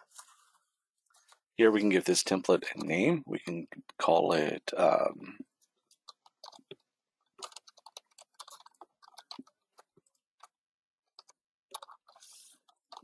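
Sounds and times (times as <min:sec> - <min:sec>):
typing on computer keyboard: 0:05.9 - 0:13.0.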